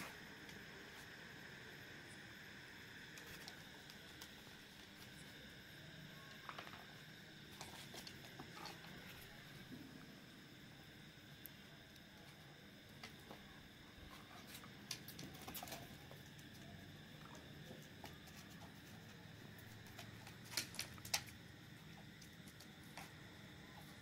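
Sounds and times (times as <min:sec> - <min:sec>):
dog claws clicking on tiled floor: 0:19.6 - 0:21.4.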